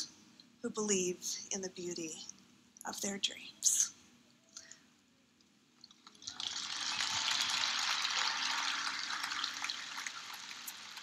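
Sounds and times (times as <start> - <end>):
audience applauding: 6.1 - 11.0.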